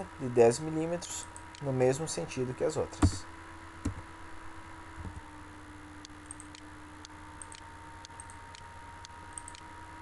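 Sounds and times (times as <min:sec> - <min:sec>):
faint electrical hum: 0:00.0 - 0:10.0
computer mouse clicking: 0:06.0 - 0:09.7.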